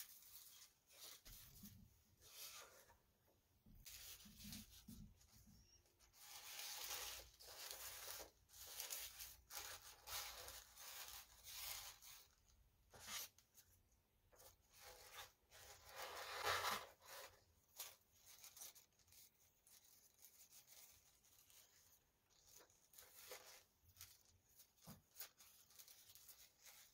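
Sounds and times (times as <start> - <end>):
tissue paper rustling: 0.0 - 3.0, 3.8 - 13.7, 14.3 - 26.9.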